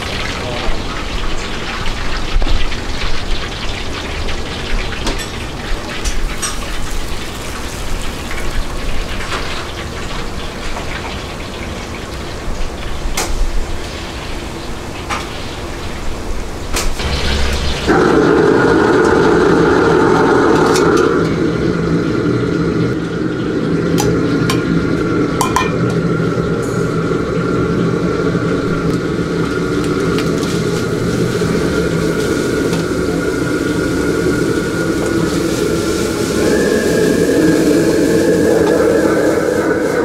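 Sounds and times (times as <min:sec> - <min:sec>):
stir-frying in a wok: 0:00.0 - 0:12.8, 0:23.0 - 0:38.8
gas burner rushing: 0:16.4 - 0:40.0
metal ladle clanking on wok: 0:25.4 - 0:26.0.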